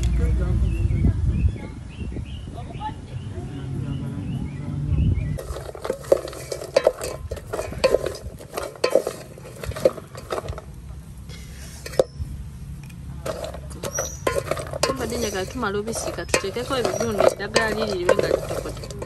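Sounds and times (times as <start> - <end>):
wooden spatula scraping metal pot: 5.4 - 10.8, 11.4 - 12.2, 13.2 - 19.0.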